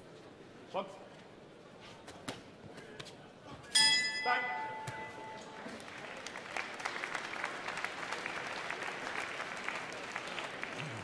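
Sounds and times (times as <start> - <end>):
crowd applauding: 5.6 - 11.0.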